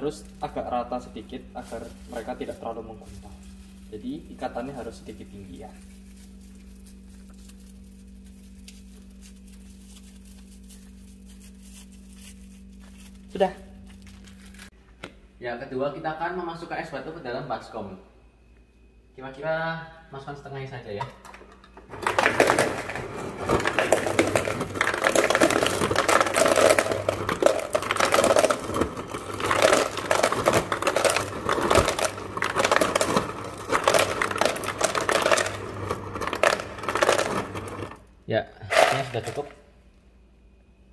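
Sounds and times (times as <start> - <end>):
ice dispenser humming: 0.0 - 5.8, 21.2 - 39.7
plastic bag crinkling: 0.0 - 14.8, 21.9 - 38.0, 38.7 - 39.6
ice cubes clattering into plastic basin: 1.6 - 3.2, 21.9 - 38.0, 38.7 - 39.6.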